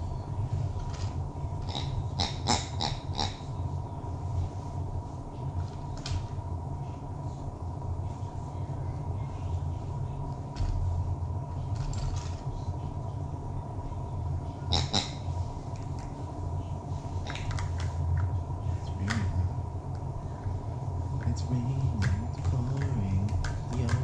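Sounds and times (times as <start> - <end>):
low room hum: 0.0 - 24.0
plastic toys clicking and tapping: 22.0 - 24.0.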